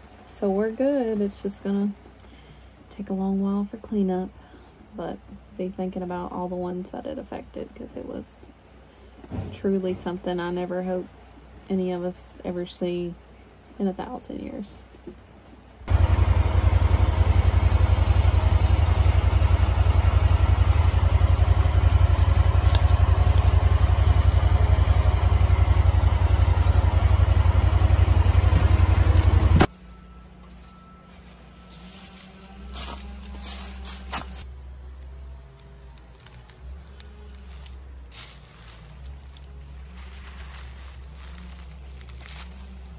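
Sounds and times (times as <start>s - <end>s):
engine running steadily: 15.8s - 42.9s.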